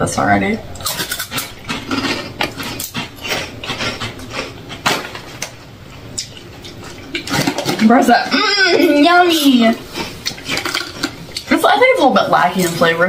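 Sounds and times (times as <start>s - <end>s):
people crunching snacks: 0.8s - 5.5s, 9.9s - 11.4s.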